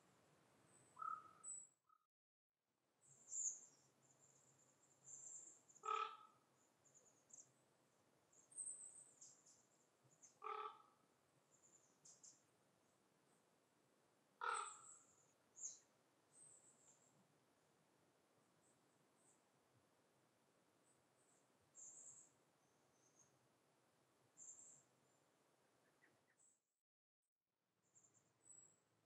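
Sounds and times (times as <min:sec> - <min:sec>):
short low bird calls: 0:01.0 - 0:01.5, 0:14.4 - 0:15.8.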